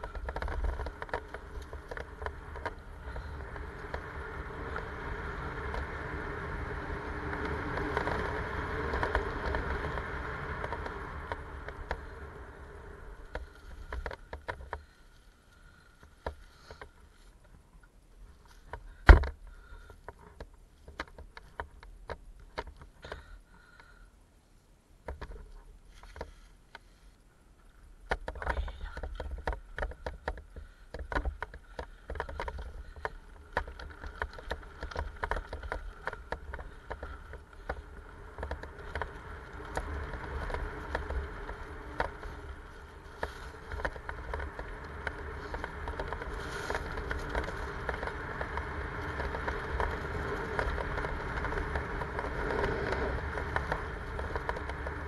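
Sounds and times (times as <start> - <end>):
bike chain and frame rattling: 0.0 - 17.2, 28.2 - 55.0
tyres rolling over dirt: 0.0 - 17.4, 28.0 - 55.0
wind rumble on microphone: 0.0 - 22.9, 27.8 - 55.0.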